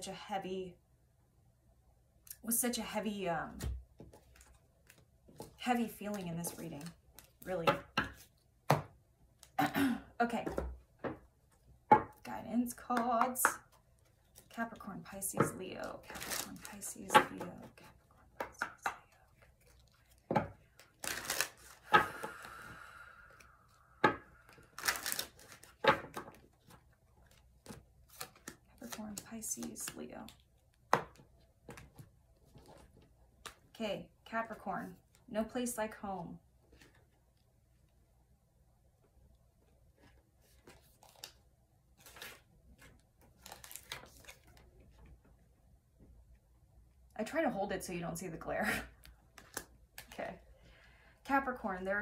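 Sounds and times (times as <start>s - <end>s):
cards slapping and riffling: 18.4s - 22.2s, 24.4s - 33.7s, 40.1s - 41.4s, 42.0s - 45.0s, 49.0s - 50.2s.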